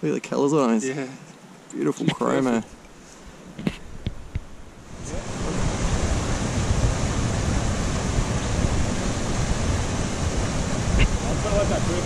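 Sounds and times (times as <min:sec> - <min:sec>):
river rushing over boulders: 0:04.8 - 0:12.0.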